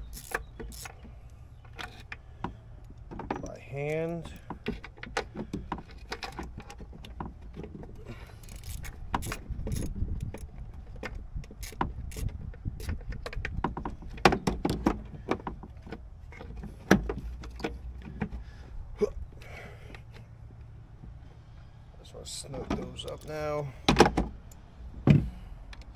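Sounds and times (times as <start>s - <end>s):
metal bolts and tools clinking: 0.0s - 2.2s.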